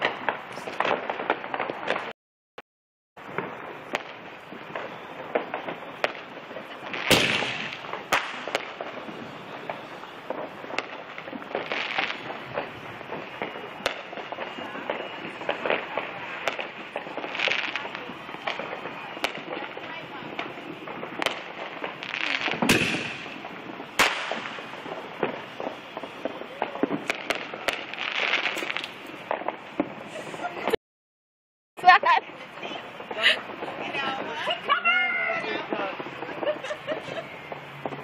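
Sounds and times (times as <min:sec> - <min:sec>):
fireworks cracking and popping: 0:00.0 - 0:02.2, 0:03.2 - 0:30.8, 0:31.8 - 0:38.0
firework hiss: 0:03.2 - 0:30.8, 0:31.8 - 0:38.0
loud firework bang: 0:03.2 - 0:30.8.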